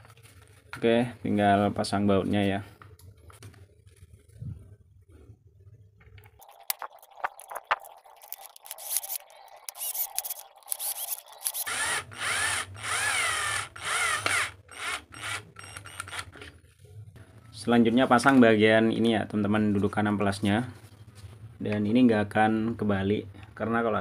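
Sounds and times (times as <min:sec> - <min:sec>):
cordless drill whining: 0:09.7 - 0:16.5.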